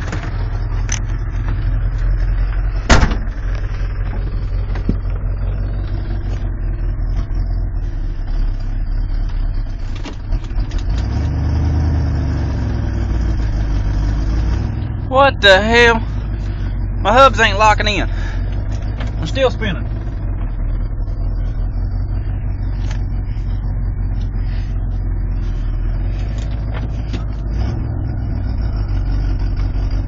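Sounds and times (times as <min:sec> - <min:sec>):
engine knocks: 0:00.0 - 0:11.4, 0:17.7 - 0:30.0
engine running inside a truck cab: 0:00.0 - 0:30.0.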